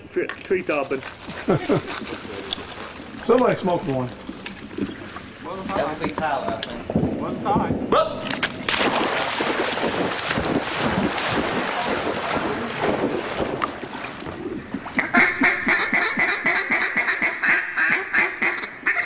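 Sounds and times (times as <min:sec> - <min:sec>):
water splashing: 0:00.0 - 0:16.4
duck quacking: 0:15.0 - 0:19.0.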